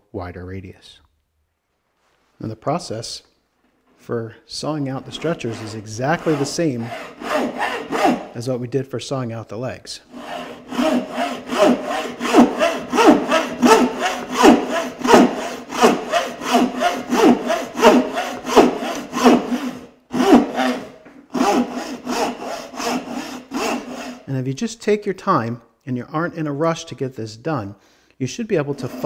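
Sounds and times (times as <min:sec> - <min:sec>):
saw cutting wood: 0:05.0 - 0:08.4, 0:10.1 - 0:24.3, 0:28.7 - 0:29.0.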